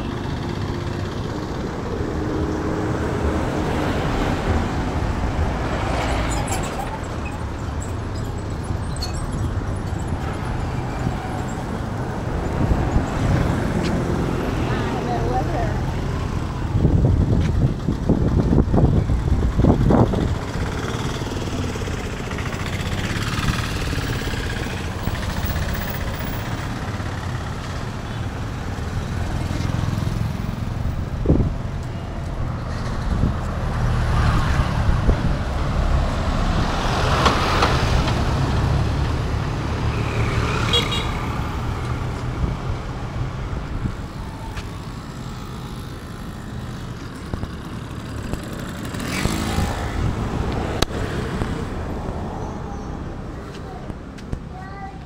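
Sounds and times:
low rumble of traffic engines: 0.0 - 55.0
vehicle passing: 28.8 - 53.7.

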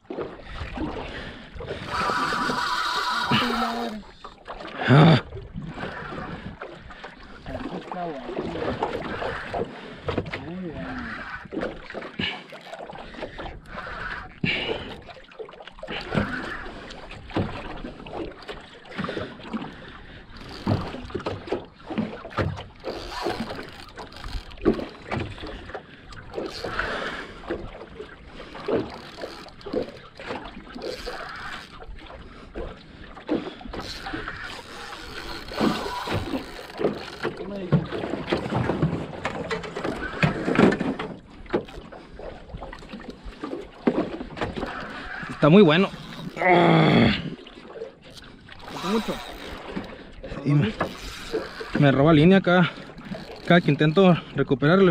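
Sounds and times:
water slapping metal boat hull: 0.0 - 54.9
boat knocks and clicks: 7.5 - 10.5, 14.4 - 26.8, 27.4 - 46.4, 47.7 - 54.9.

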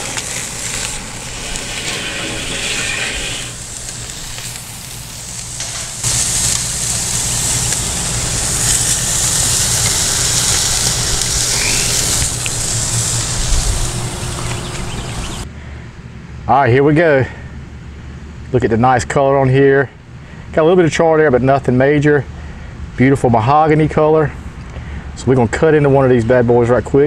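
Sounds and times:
steaks sizzling on a grill: 0.0 - 15.4
low fluttering rumble: 0.0 - 15.5.

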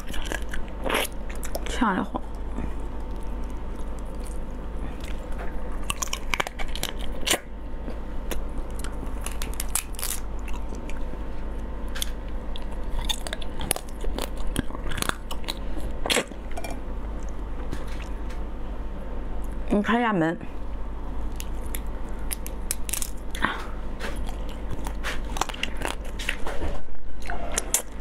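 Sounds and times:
wet crunching and chewing: 0.0 - 18.4, 21.2 - 28.0
steady low hum: 0.0 - 28.0
crab shell cracking: 2.3 - 7.5, 8.3 - 11.1, 11.9 - 17.4, 21.3 - 23.4.

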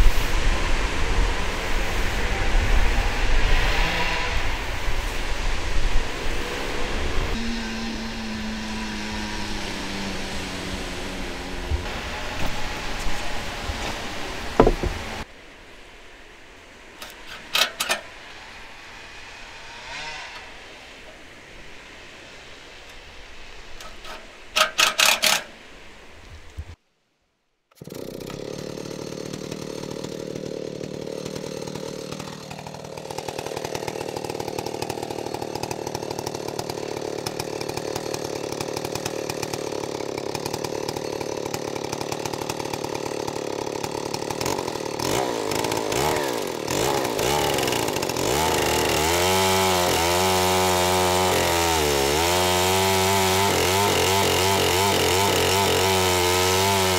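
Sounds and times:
chainsaw cutting a log: 0.0 - 15.3, 17.0 - 20.7, 23.8 - 25.6, 27.7 - 56.9
loud knocks: 14.5 - 15.2.

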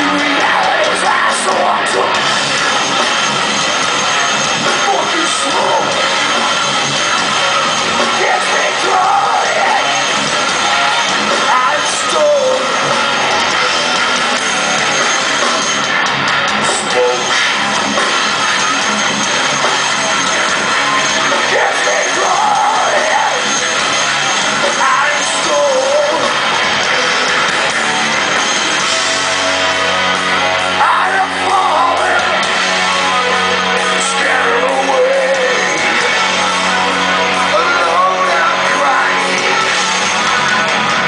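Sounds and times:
heavy metal band playing live: 0.0 - 41.0
person singing: 8.2 - 10.0, 24.8 - 26.4, 33.9 - 36.1.

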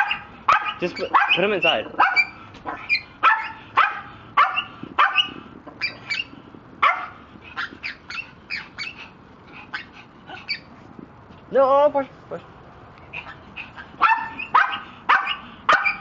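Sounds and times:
dog barking: 0.0 - 8.9, 14.0 - 16.0.

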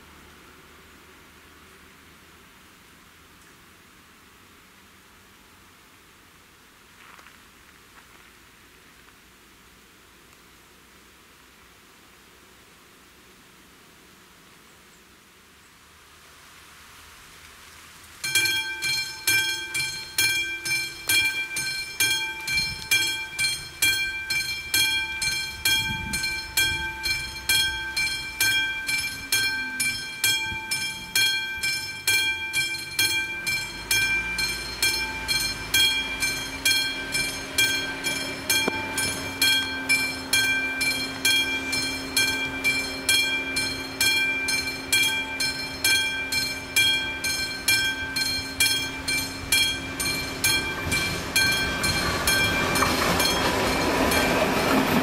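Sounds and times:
level crossing bell ringing: 18.2 - 55.0
van engine idling: 18.4 - 55.0.

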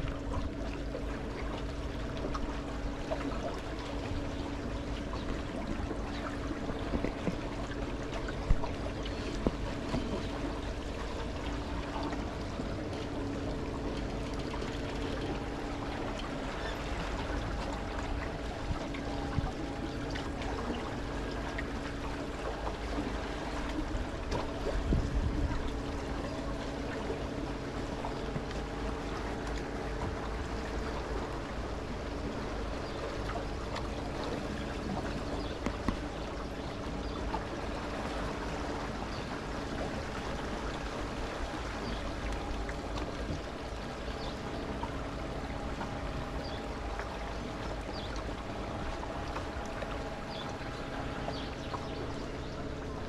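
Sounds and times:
boat motor humming: 0.0 - 53.0
water splashing along hull: 0.0 - 53.0.

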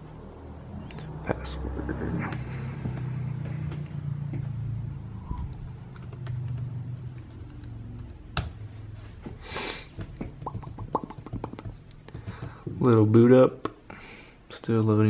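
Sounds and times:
low hum: 0.0 - 9.3
laptop keyboard typing clicks: 5.9 - 8.5.

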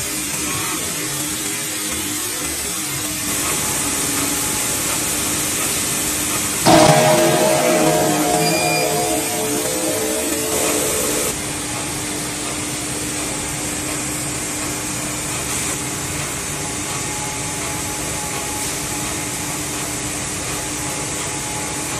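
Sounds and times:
factory machinery whirring: 6.7 - 11.3
guitar music: 6.7 - 11.3.

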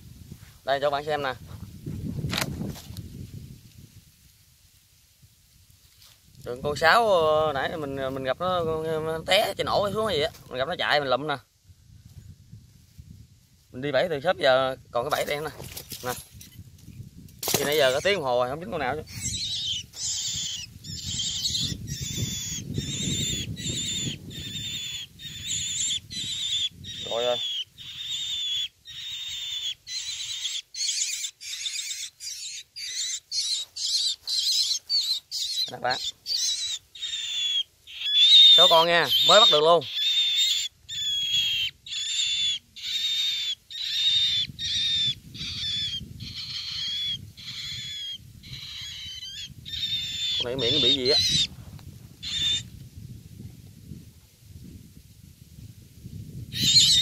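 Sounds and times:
young bird harsh cries: 17.5 - 51.5, 52.2 - 52.7, 56.5 - 57.0.

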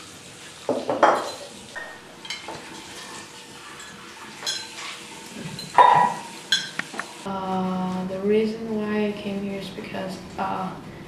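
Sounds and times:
fork clinking on ceramic: 5.6 - 6.8.

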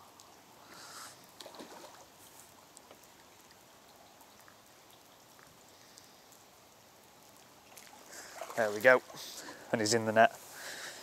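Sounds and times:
rain pattering on river: 0.0 - 11.0
fish splashing at surface: 1.4 - 2.1.

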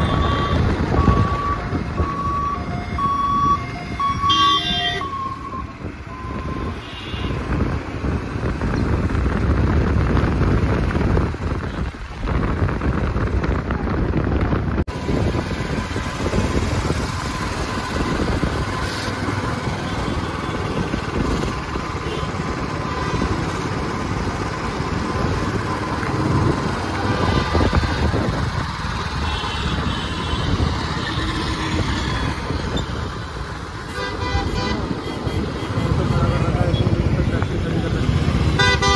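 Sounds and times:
traffic passing: 0.0 - 38.9
wind on microphone: 5.0 - 33.8.

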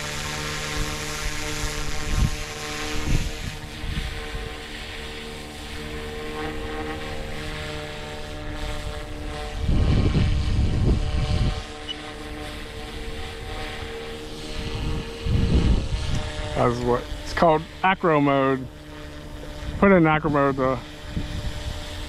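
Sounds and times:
rc helicopter motor whine: 0.0 - 22.0
wind buffeting microphone: 0.7 - 6.3, 8.6 - 17.3, 20.6 - 22.0.

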